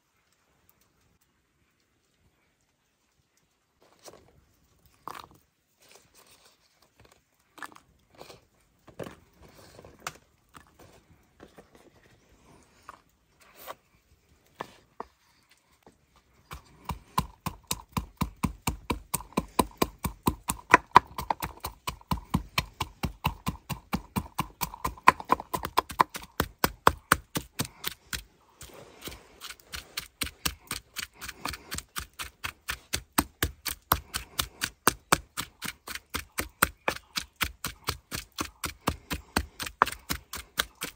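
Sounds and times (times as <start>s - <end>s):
quiet scrapes and taps: 3.8s - 17.0s.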